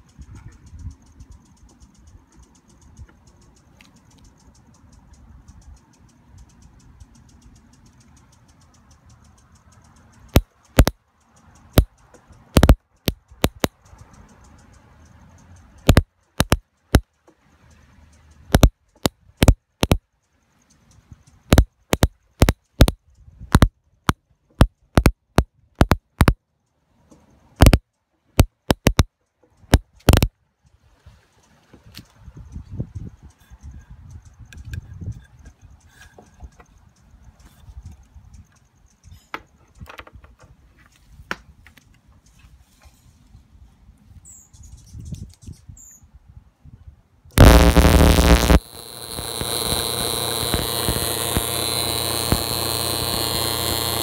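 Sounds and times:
electric sparks cracking: 15.9 - 16.6, 27.6 - 27.8, 47.4 - 54.0
faint hum: 47.4 - 54.0.

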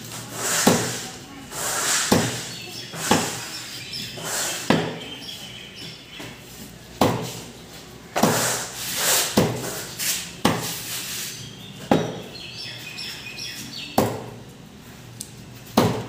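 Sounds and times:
cleaver chopping fish on wood: 2.1 - 2.4, 7.0 - 7.3, 15.8 - 16.0.

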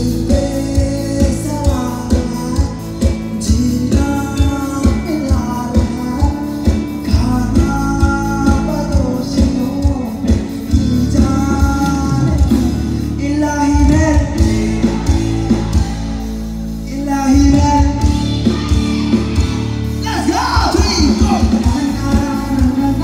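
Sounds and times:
keyboard: 0.0 - 23.0
person singing: 0.0 - 23.0
drum beat: 17.4 - 23.0.

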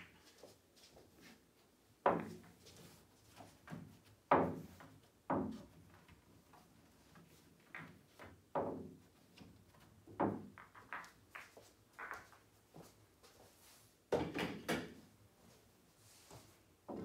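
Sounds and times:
billiard balls clacking: 10.1 - 12.4.

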